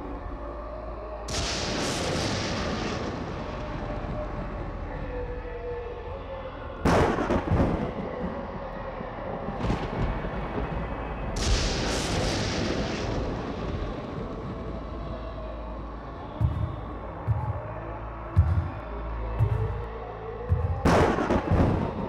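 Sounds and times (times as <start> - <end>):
faint steady drone: 7.8 - 22.0.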